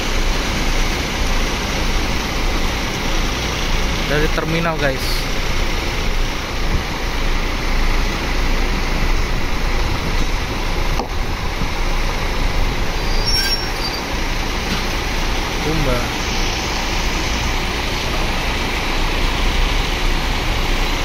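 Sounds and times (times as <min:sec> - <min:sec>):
diesel coach engines rumbling: 0:00.0 - 0:21.0
short high squeak: 0:13.0 - 0:14.1.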